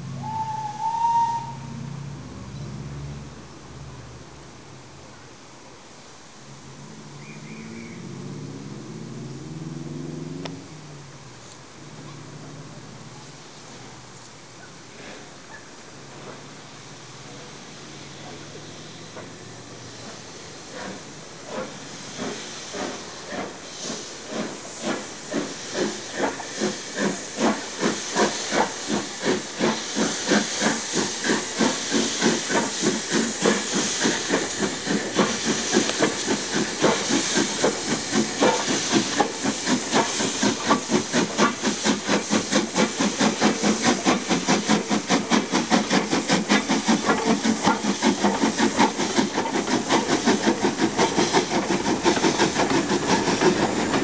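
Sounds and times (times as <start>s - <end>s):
steam hissing: 0.0s - 3.9s, 14.8s - 54.0s
steam locomotive exhaust beats: 0.0s - 5.2s, 14.9s - 54.0s.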